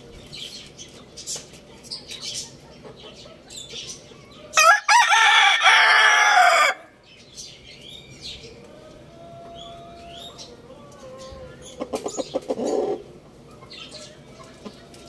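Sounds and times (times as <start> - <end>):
rooster crowing: 4.6 - 7.0.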